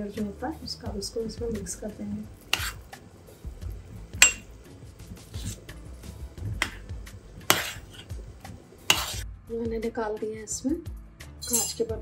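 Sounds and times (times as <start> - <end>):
metal spoon scraping a pot: 2.4 - 2.9, 5.2 - 5.8, 7.4 - 8.2, 8.8 - 9.2, 11.4 - 11.9.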